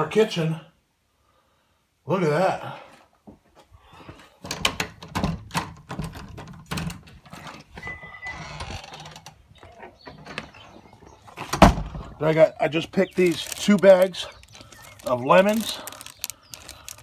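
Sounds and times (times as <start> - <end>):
door squeak: 7.4 - 10.6
soft handling noise: 12.7 - 17.0.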